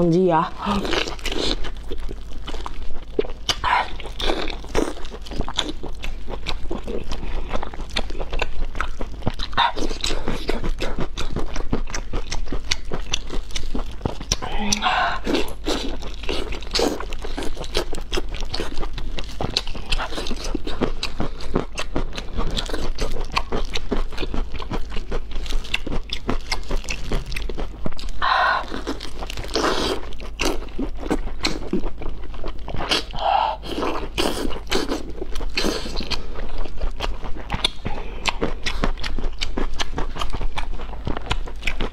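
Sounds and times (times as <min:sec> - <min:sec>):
chewing and wet smacking: 0:00.5 - 0:41.9
mouth clicks: 0:14.3 - 0:15.7.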